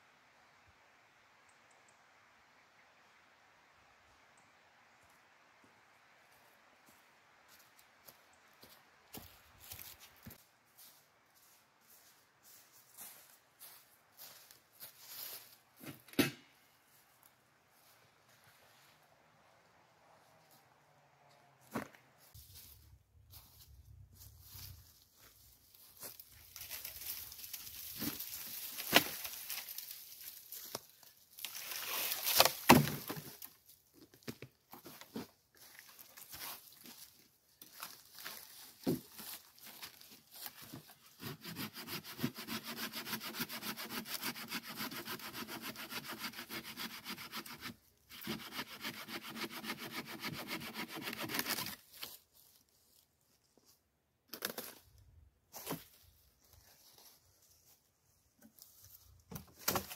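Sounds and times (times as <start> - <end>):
dry branches cracking: 26.5 - 33.4
hand saw cutting branch: 41.1 - 51.8.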